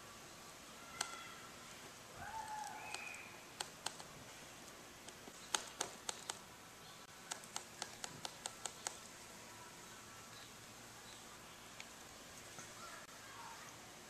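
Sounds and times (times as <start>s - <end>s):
paintbrush clicks and taps: 5.0s - 6.4s, 7.3s - 9.1s.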